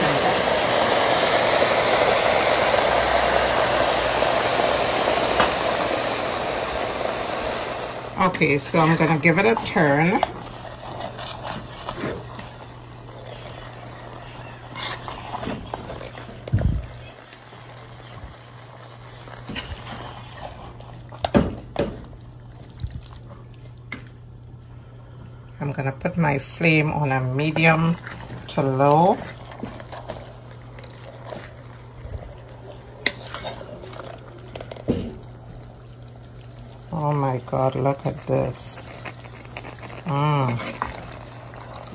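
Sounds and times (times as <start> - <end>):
food sizzling in a pan: 0.0 - 22.5, 27.2 - 41.9
steady low hum: 0.0 - 41.9
wooden spoon stirring: 8.2 - 24.2, 26.4 - 41.9
wooden spatula scraping a pan: 8.6 - 16.5, 19.4 - 21.4, 33.0 - 34.1.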